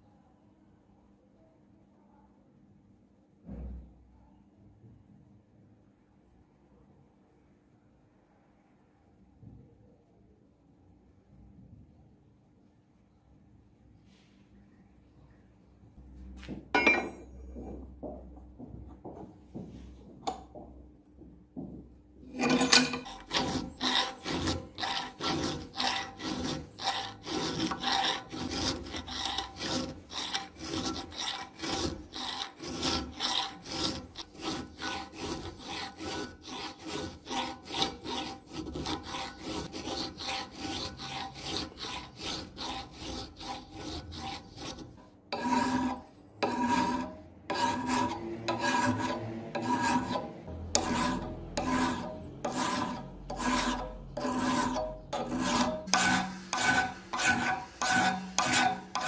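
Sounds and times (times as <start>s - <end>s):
hand file rasping on steel: 22.3s - 59.0s.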